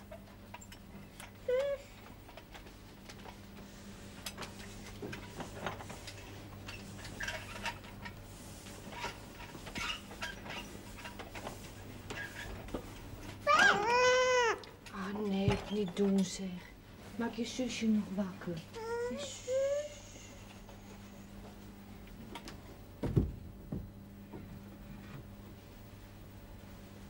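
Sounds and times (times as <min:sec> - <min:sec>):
loud high-pitched cry: 0:13.5 - 0:14.6.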